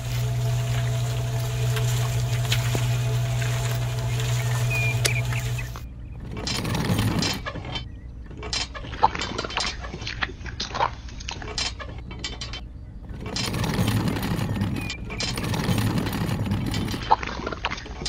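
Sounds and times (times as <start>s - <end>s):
wet cement pouring into wheelbarrow: 0.0s - 5.8s
miniature concrete mixer clinking: 0.0s - 9.8s, 10.6s - 18.0s.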